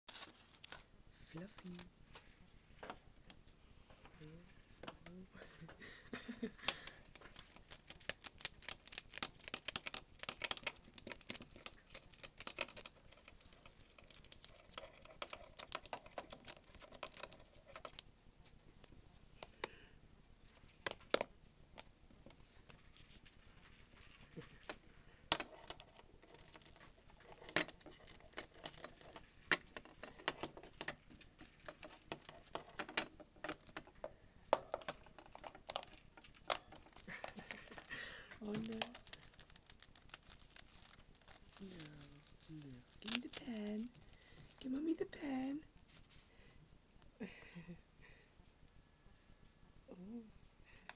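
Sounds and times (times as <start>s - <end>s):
hamster teeth gnawing on a pen: 6.6s - 18.1s, 24.2s - 44.6s.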